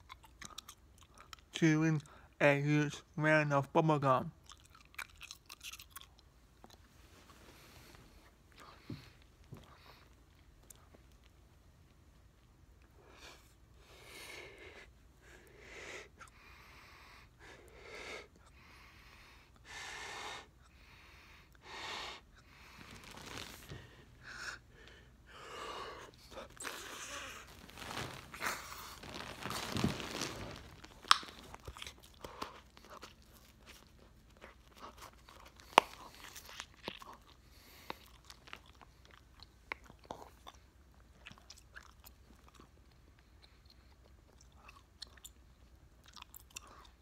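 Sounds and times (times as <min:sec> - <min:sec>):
wet chewing and smacking: 0:00.0 - 0:02.3, 0:04.4 - 0:07.2, 0:08.5 - 0:12.9, 0:26.0 - 0:47.0
bubblegum bubbles snapping: 0:31.0 - 0:31.7.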